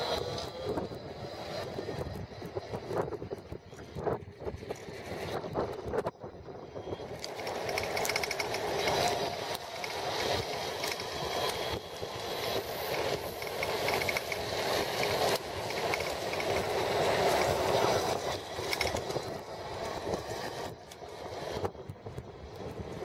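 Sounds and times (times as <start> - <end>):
tyre noise on paved road: 0.0 - 23.0
wind rushing over microphone: 0.0 - 23.0
bicycle clicks and rattles: 7.1 - 11.7, 12.9 - 17.6, 18.6 - 19.3.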